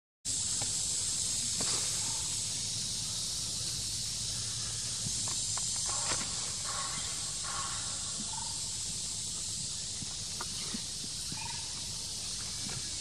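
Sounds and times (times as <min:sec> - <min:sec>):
insects hissing: 0:00.3 - 0:13.0
rustles and clicks in leaf litter: 0:05.0 - 0:06.9.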